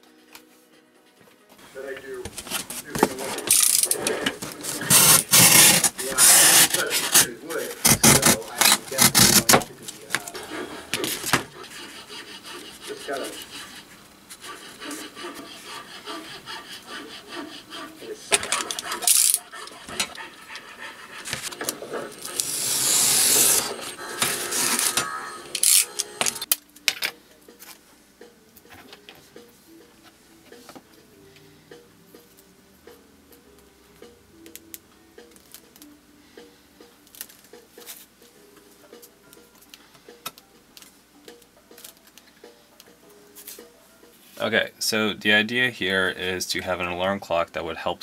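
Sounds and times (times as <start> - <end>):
utility knife cutting cardboard: 3.6 - 13.6, 22.1 - 25.0.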